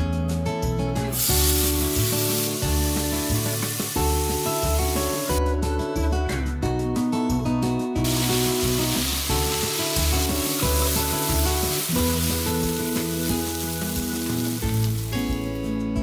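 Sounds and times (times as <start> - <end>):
background music: 0.0 - 16.0
pork sizzling: 1.1 - 5.4, 8.0 - 15.8.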